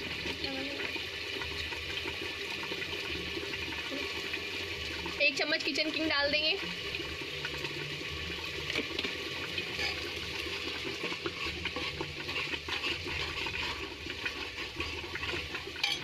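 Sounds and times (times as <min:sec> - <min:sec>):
thick gravy bubbling: 0:00.0 - 0:16.0
ladle scraping pot: 0:08.7 - 0:16.0.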